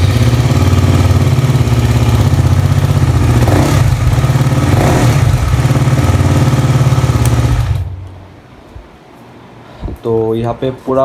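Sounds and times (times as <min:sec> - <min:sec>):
motorcycle engine idling: 0:00.0 - 0:08.1.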